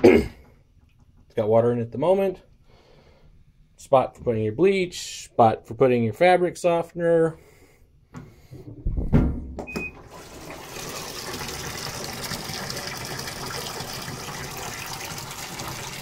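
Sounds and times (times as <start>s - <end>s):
water pouring into washer tub: 9.9s - 16.0s.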